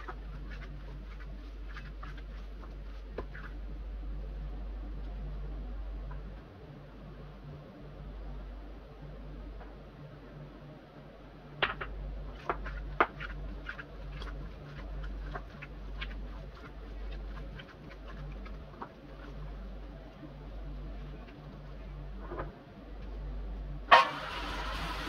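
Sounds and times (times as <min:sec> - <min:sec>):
hands kneading wet minced meat: 0:00.0 - 0:07.1, 0:11.8 - 0:22.2
low electrical hum: 0:00.0 - 0:25.0.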